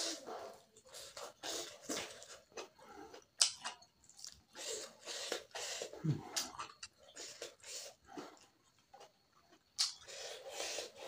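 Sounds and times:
wet chewing: 0.4s - 11.0s.

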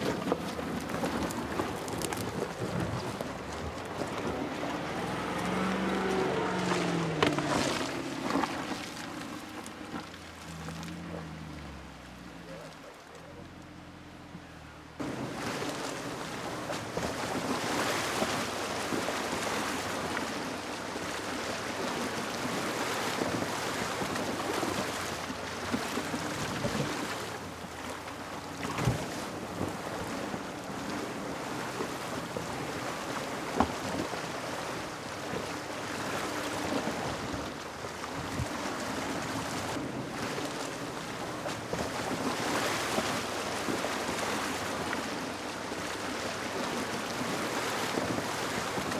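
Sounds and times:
stream rushing over rocks: 0.0s - 14.0s.

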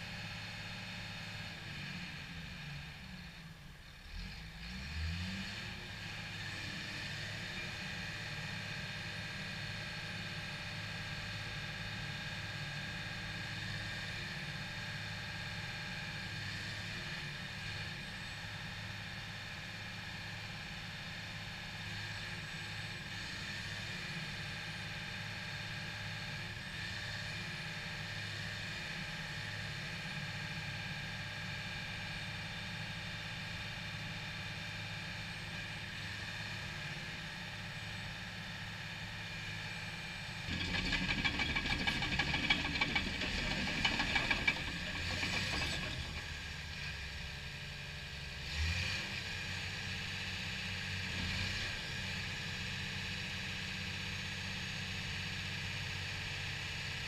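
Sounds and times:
diesel engine revving: 4.1s - 6.9s, 40.2s - 47.2s, 48.3s - 49.6s.

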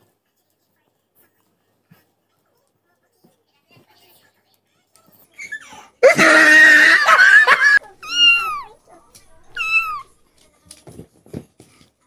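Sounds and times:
cat crying harshly: 6.0s - 8.7s, 9.5s - 10.1s
cat meowing: 8.0s - 8.7s, 9.5s - 10.1s.

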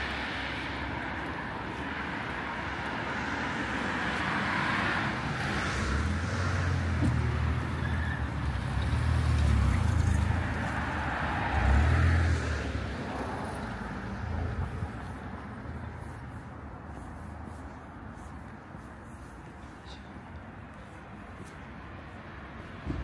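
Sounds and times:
car driving past: 4.4s - 12.9s.

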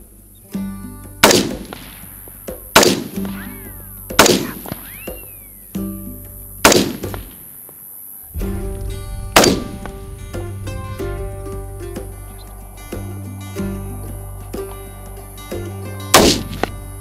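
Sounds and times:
background music: 0.0s - 7.3s, 8.4s - 17.0s
rifle shots: 2.8s - 3.1s, 4.2s - 4.9s, 6.6s - 7.3s, 9.3s - 10.0s.

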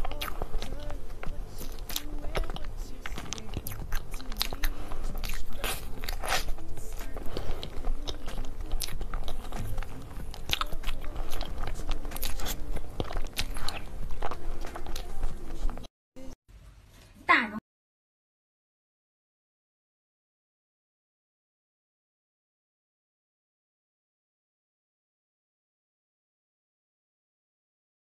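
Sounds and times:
spoon crunching into cake: 0.0s - 15.8s
background music: 0.0s - 16.4s.

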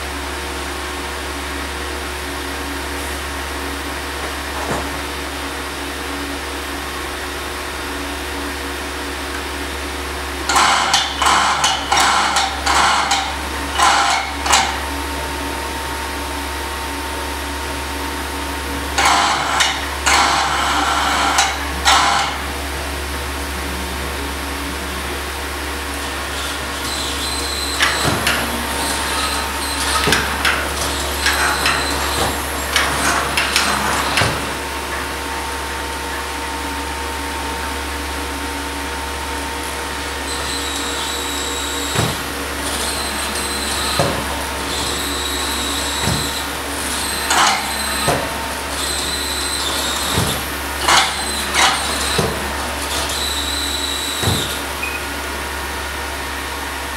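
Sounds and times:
steady machine hum: 0.0s - 56.9s
robot motors whining: 26.0s - 34.6s, 40.2s - 54.7s.

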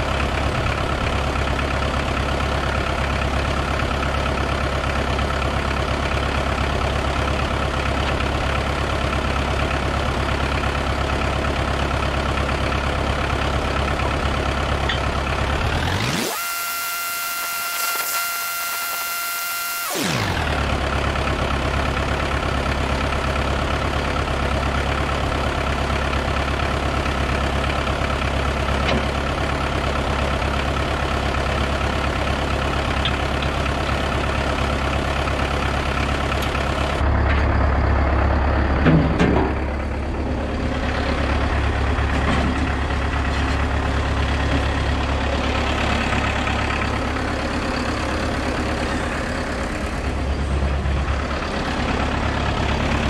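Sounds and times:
diesel engine running: 0.0s - 53.0s
machinery clunk: 38.8s - 39.7s.

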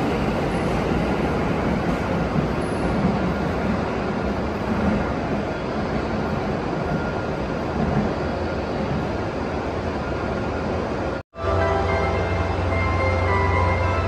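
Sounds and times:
train wheels rumbling on rails: 0.0s - 11.2s.

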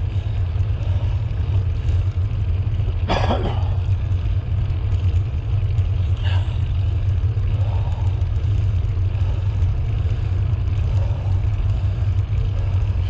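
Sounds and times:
bicycle tyre noise: 0.0s - 13.0s.

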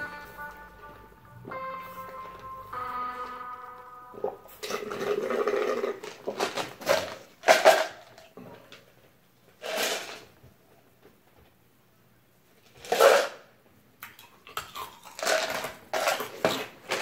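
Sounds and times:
straw slurping drink: 4.6s - 6.2s
ice rattling in a cup: 4.6s - 7.9s, 14.8s - 17.0s.

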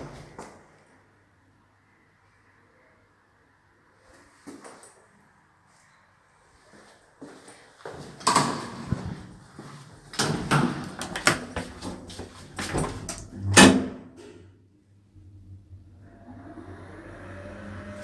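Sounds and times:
low steady hum: 14.6s - 18.0s.

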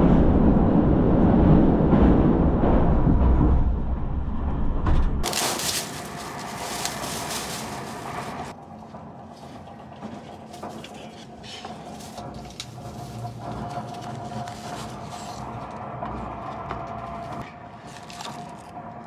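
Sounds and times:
train rumbling: 0.0s - 19.0s
plastic bag and cloth rustling: 5.2s - 8.5s.

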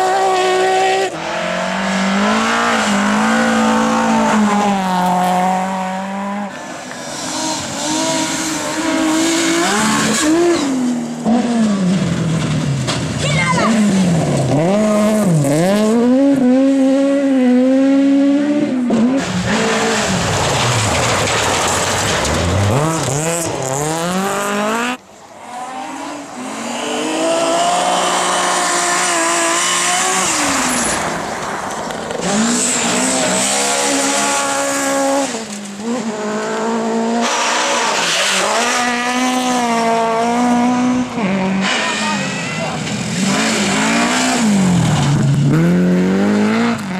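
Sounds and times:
rally car engines at full throttle: 0.0s - 46.9s
tyres scrabbling on gravel: 19.9s - 23.9s.

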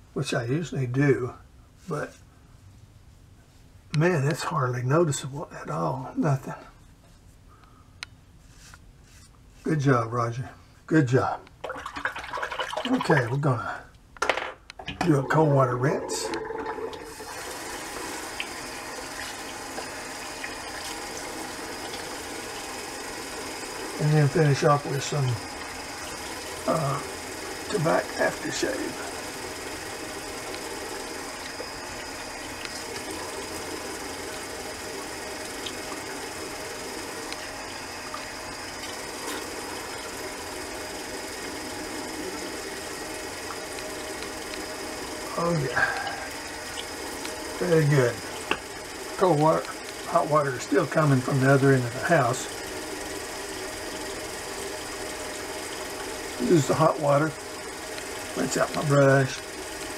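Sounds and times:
water splashes: 11.6s - 13.4s
sink tap running: 11.6s - 13.5s, 14.8s - 59.9s.

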